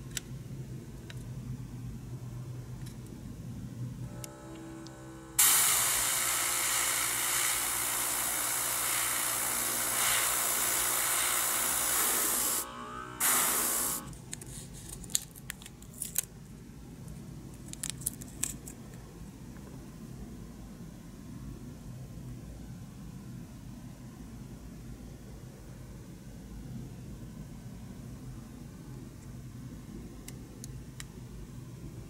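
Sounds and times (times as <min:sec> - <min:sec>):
airbrush spraying air hiss: 0:05.4 - 0:14.1.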